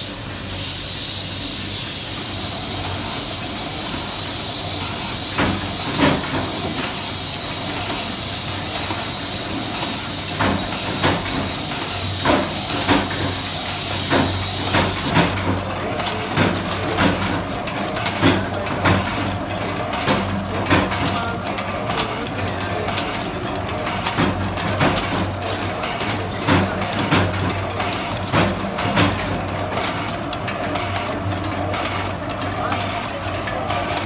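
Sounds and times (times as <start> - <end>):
roller machine humming and hissing: 0.0 - 34.0.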